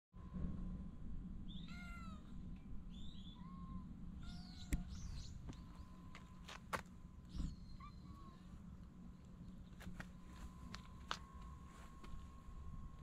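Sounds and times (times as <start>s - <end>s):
low steady rumble: 0.2s - 13.0s
cat meowing: 1.6s - 2.3s, 3.3s - 4.9s.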